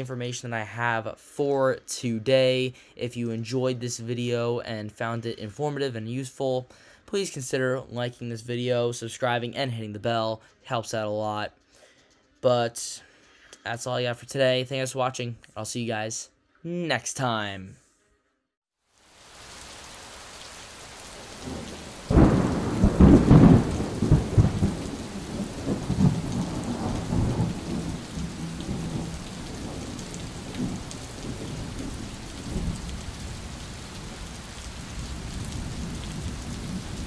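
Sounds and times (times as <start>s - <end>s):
steady rain: 18.9s - 37.0s
thunderclap rumbling: 21.2s - 37.0s.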